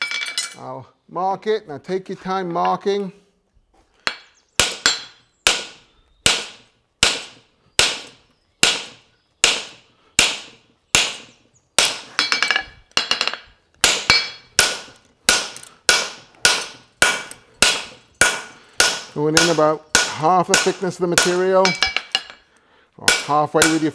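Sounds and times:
hammer striking metal on anvil: 6.3s - 22.4s.

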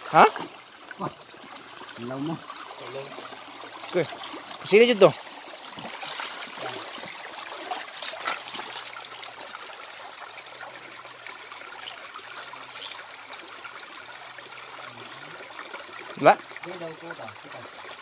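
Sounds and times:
faint splashes: 0.0s - 10.2s
stream running over rocks: 0.0s - 18.0s.

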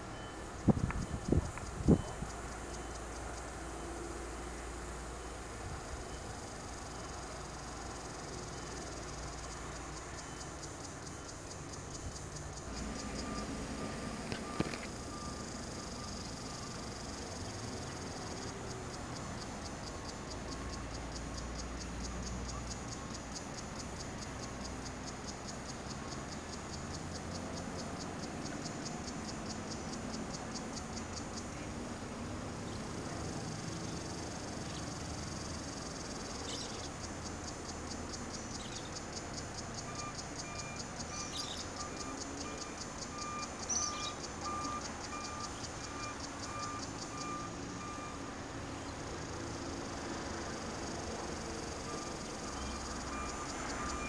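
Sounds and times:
vehicle reversing beeper: 0.0s - 4.6s, 6.0s - 23.2s, 39.6s - 49.6s, 50.5s - 54.0s
insects chirping: 0.0s - 54.0s.

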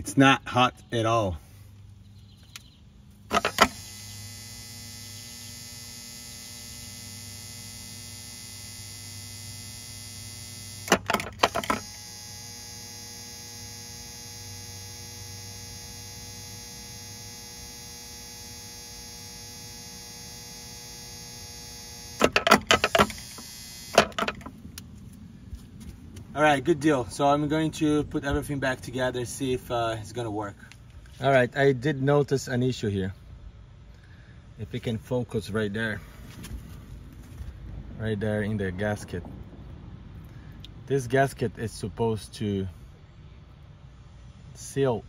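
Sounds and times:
electric pump motor humming: 3.2s - 24.6s.

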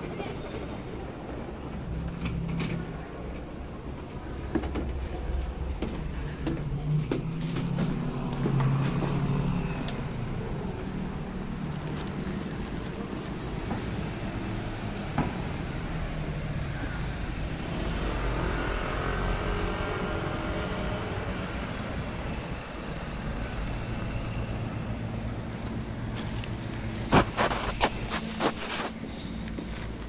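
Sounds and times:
bus with tyre noise: 0.0s - 30.0s
passing car engines: 6.7s - 30.0s
motorcycle: 16.6s - 21.9s.

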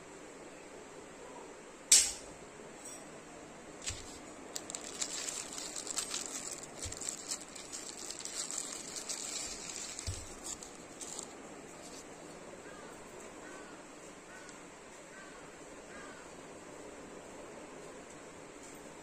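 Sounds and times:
plastic bag crinkling: 3.8s - 12.2s.

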